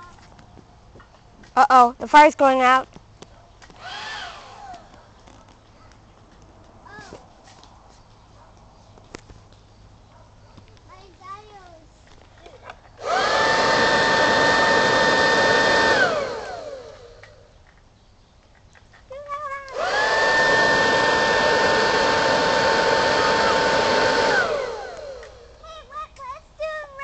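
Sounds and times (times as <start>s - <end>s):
electric leaf blower whine: 3.6s - 5.4s, 13.0s - 17.6s, 19.6s - 25.7s.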